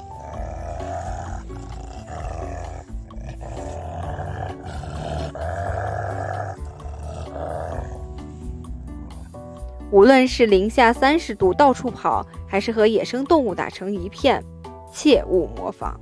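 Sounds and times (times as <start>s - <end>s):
wolves snarling: 0.0s - 9.9s
background music: 0.0s - 16.0s.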